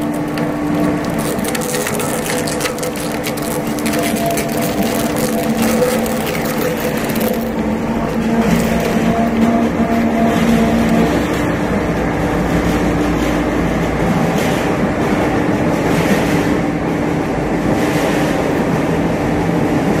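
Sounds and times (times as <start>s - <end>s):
rollers stripping wire from rubber: 0.0s - 11.5s.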